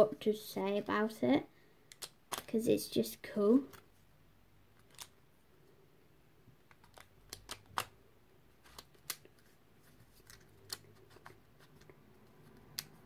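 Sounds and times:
puzzle cube plastic clicks: 1.8 - 2.6, 4.8 - 5.2, 6.6 - 8.0, 8.6 - 9.5.

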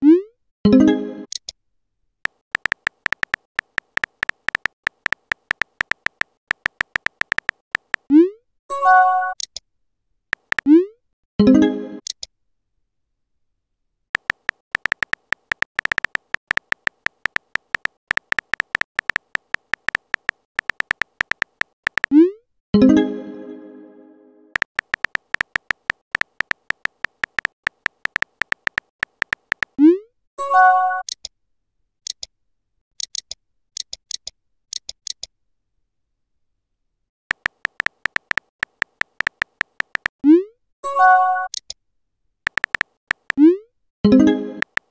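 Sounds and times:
phone keyboard typing clicks: 2.3 - 8.1, 10.3 - 10.7, 14.2 - 22.2, 24.6 - 29.8, 37.3 - 40.2, 42.5 - 43.5, 44.5 - 44.9.

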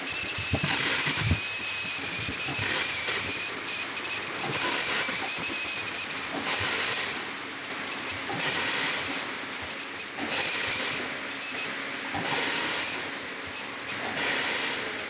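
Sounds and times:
hissing bursts: 0.0 - 7.2
packing machine clatter: 0.0 - 15.0.

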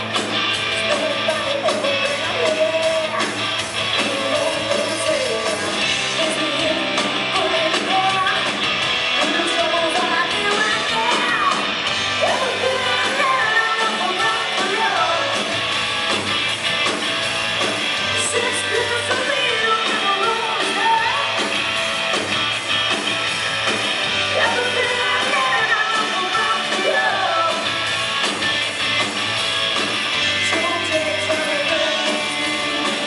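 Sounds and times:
live hard rock band: 0.0 - 33.0
woman singing lead vocal: 0.8 - 8.6, 9.2 - 15.6, 18.1 - 21.4, 24.3 - 27.7, 30.4 - 33.0.

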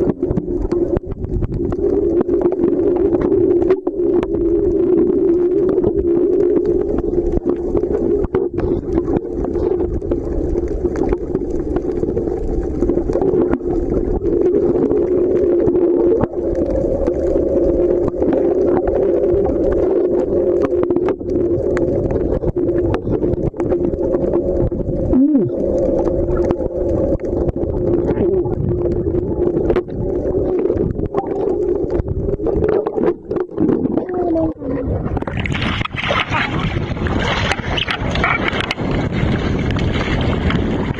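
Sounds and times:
underwater clicks and gurgles: 0.0 - 40.9
underwater engine drone: 0.0 - 40.9
loud splashing: 35.2 - 40.9.

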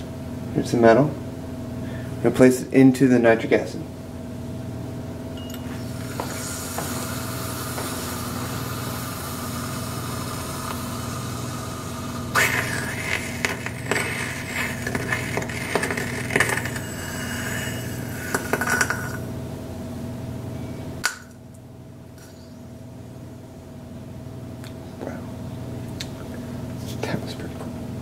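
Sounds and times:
steady low hum: 0.0 - 28.0
chemical reaction fizzing and crackling: 6.0 - 19.3.

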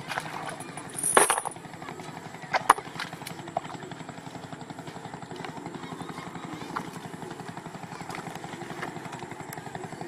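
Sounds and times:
water splashing: 0.0 - 1.1
steady low drone: 0.0 - 10.0.

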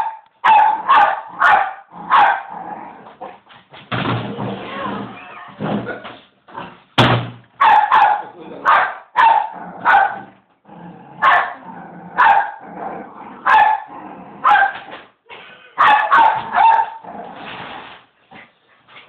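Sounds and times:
small dog barking: 0.0 - 2.5, 7.6 - 10.3, 11.2 - 11.6, 12.2 - 12.6, 13.4 - 14.8, 15.8 - 17.0.

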